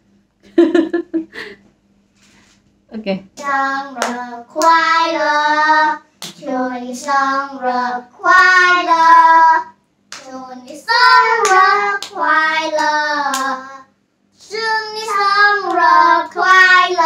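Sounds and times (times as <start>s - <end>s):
sharp hand claps: 3.4s - 4.8s, 6.2s - 6.4s, 10.1s - 10.4s, 11.3s - 13.6s
children singing: 3.5s - 17.0s.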